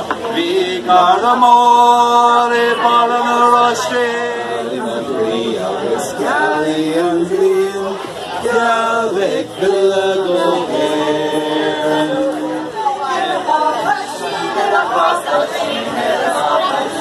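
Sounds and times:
group singing unaccompanied: 0:00.0 - 0:17.0.

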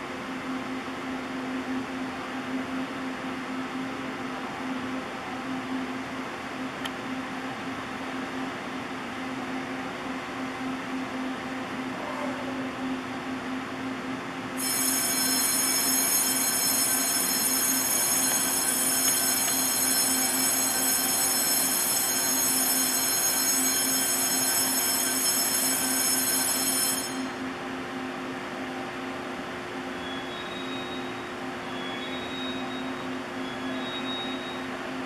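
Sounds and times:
high-pitched train squeal: 0:14.6 - 0:27.5, 0:29.9 - 0:34.8.

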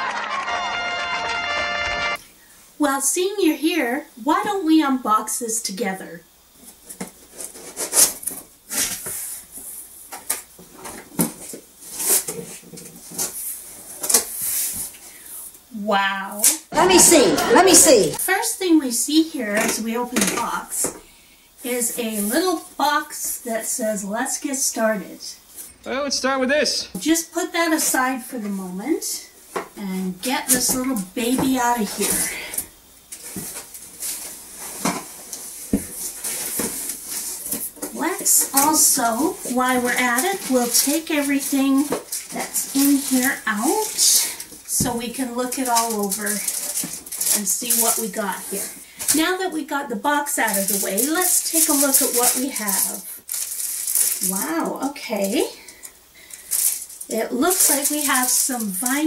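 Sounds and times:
plastic bag rustling: 0:30.2 - 0:59.0.

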